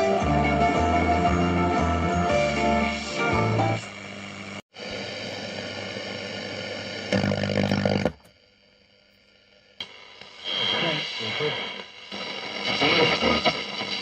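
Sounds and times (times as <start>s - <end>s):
music from radio: 0.0s - 4.0s, 9.8s - 14.0s
radio static with whistling tones: 7.1s - 8.2s, 9.8s - 14.0s.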